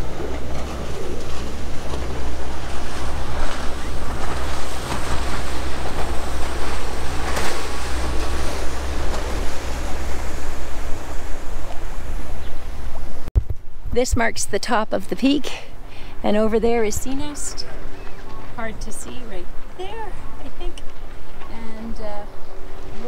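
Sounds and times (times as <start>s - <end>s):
wind buffeting microphone: 0.0s - 14.4s.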